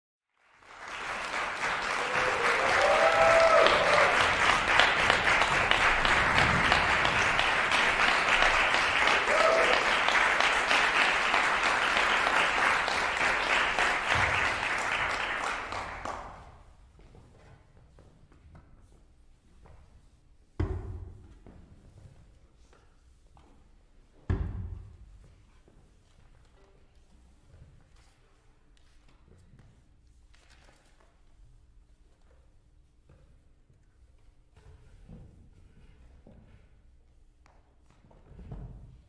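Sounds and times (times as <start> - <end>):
audience applauding: 0.3 - 16.5.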